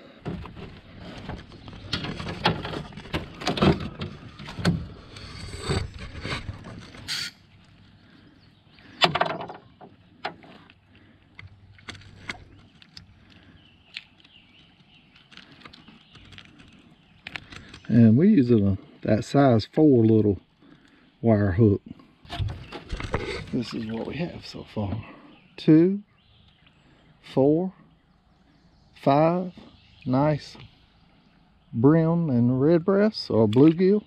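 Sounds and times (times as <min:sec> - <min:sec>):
fish handling knocks and clicks: 0:08.9 - 0:17.9.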